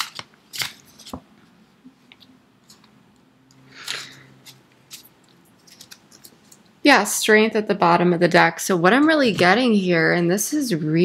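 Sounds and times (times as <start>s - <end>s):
cards shuffling: 0.0s - 1.3s, 3.7s - 6.6s.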